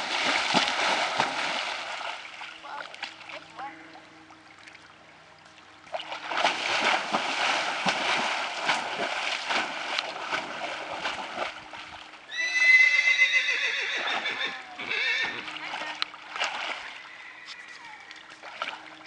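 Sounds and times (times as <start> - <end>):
horse splashing through water: 0.0 - 3.6, 5.9 - 19.0
horse whinnying: 12.3 - 15.5.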